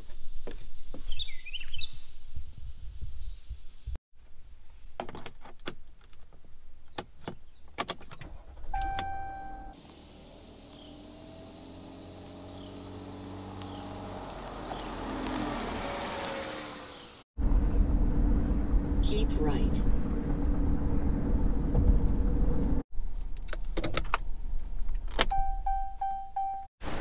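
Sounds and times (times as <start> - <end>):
car engine accelerating: 9.8 - 22.8.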